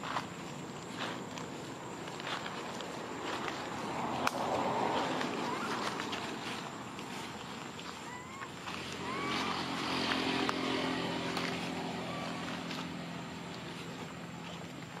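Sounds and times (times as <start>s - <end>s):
dry leaves crackling underfoot: 0.0s - 15.0s
vehicle engine running: 0.0s - 15.0s
short rising squeaks: 8.0s - 12.6s.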